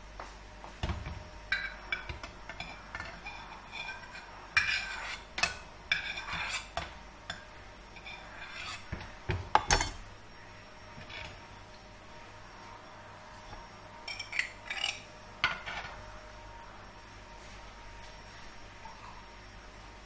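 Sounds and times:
dishes and utensils clinking: 0:01.5 - 0:07.4, 0:08.0 - 0:10.0, 0:14.0 - 0:16.0.

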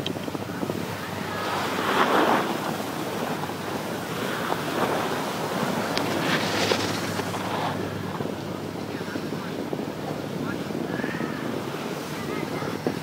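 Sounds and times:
wind rushing over microphone: 0:00.0 - 0:13.0
skis hissing on snow: 0:01.4 - 0:02.7, 0:06.0 - 0:07.8.

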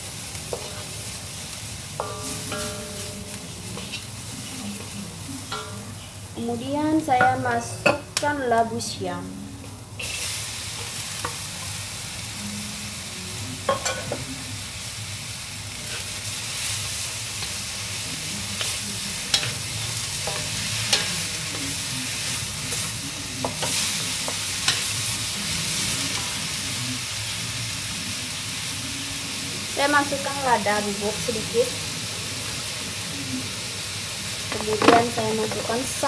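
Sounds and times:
spatula stirring food: 0:00.0 - 0:06.3, 0:15.8 - 0:27.1
food sizzling in a wok: 0:00.0 - 0:36.0.

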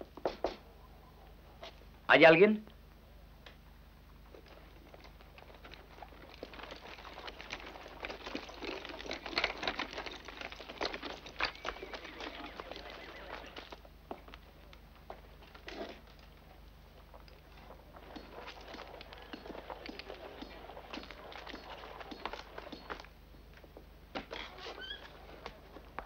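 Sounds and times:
horse hooves clopping on dirt: 0:04.0 - 0:26.0
buggy wheels knocking: 0:04.4 - 0:14.8, 0:17.1 - 0:23.1.

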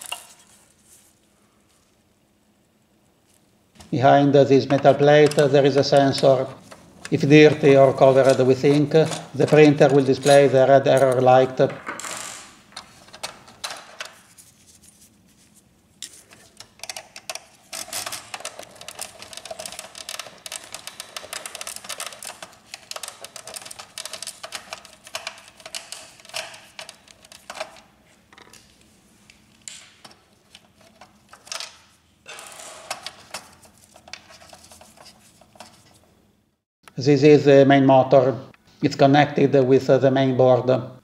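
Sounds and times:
plastic parts clicking and scraping: 0:04.8 - 0:11.3, 0:16.0 - 0:36.0.

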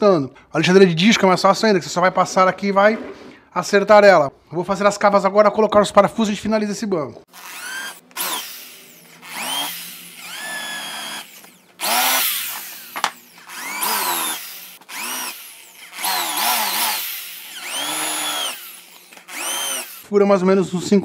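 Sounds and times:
electric drill whining: 0:07.3 - 0:20.1.

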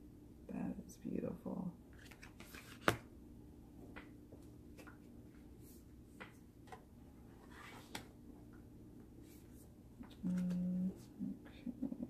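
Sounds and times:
faint steady hum: 0:00.0 - 0:12.0
cards tapping and sliding: 0:02.0 - 0:03.1.

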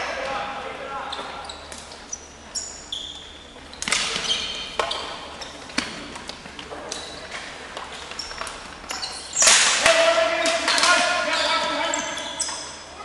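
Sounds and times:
sneaker squeaks: 0:00.9 - 0:13.0
sticks clacking on ball and floor: 0:07.7 - 0:11.1.

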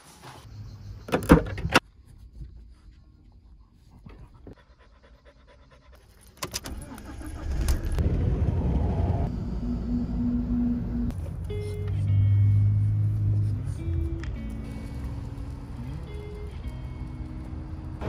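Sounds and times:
car engine rumbling: 0:06.4 - 0:18.0.

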